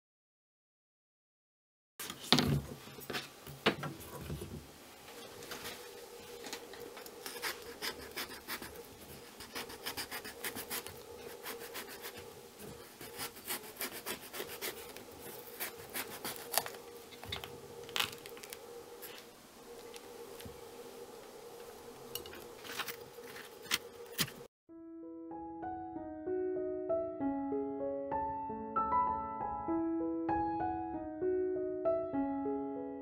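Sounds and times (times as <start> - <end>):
faint steady hum: 2.8 - 24.5
knife scraping pumpkin flesh: 7.1 - 19.2.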